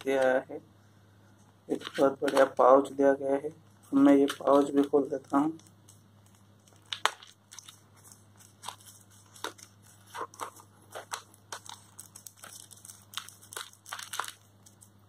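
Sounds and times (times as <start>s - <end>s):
plastic bag crinkling: 3.8s - 15.0s.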